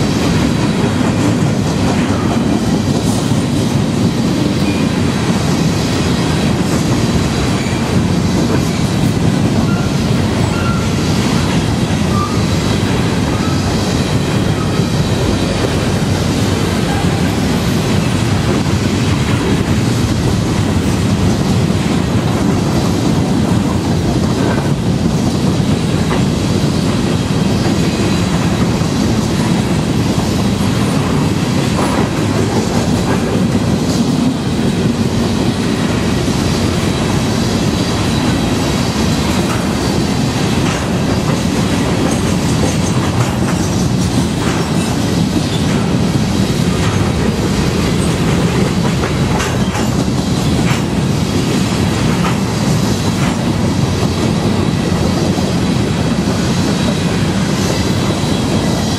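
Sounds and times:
clickety-clack over rail joints: 0.0s - 58.9s
train wheels rumbling on rail: 0.0s - 58.9s
faint high wheel squeal: 9.6s - 11.0s, 12.1s - 12.5s.

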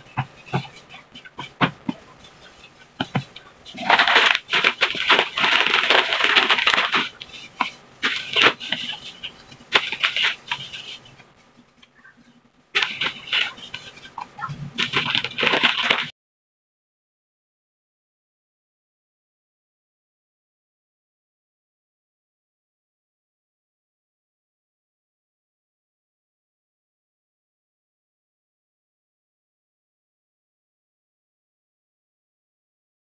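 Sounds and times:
plastic glove rustling: 0.2s - 11.9s, 12.8s - 16.1s
plastic wrapper crinkling: 3.8s - 9.0s, 9.7s - 10.9s, 12.8s - 14.1s, 14.8s - 16.1s.

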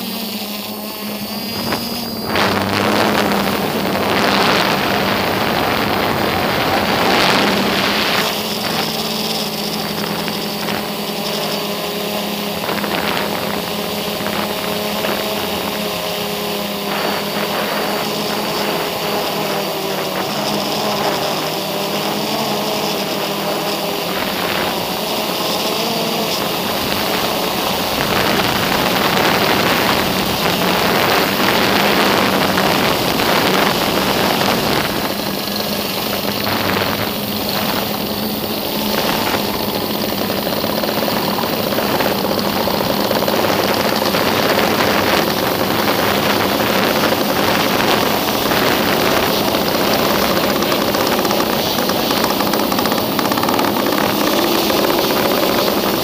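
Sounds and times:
drone propellers buzzing: 0.0s - 56.0s
wind noise on microphone: 0.0s - 56.0s.

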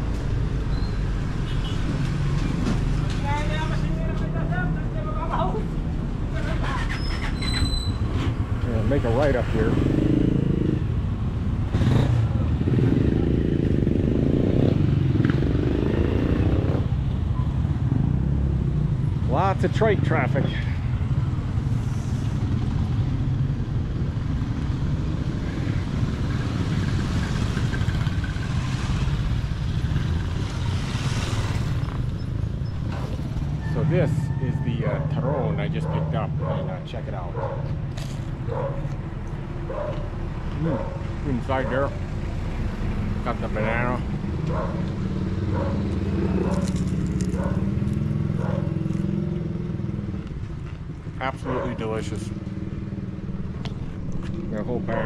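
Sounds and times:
motorcycle engine rumble: 22.4s - 55.0s
motorcycle engine running: 43.2s - 55.0s.

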